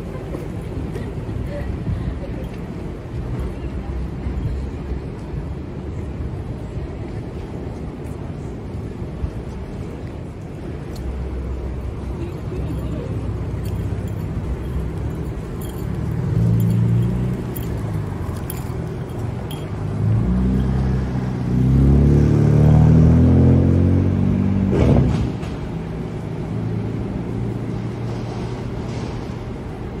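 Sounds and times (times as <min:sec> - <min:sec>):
low hum of traffic: 0:00.0 - 0:30.0
vehicle accelerating past: 0:19.9 - 0:25.4.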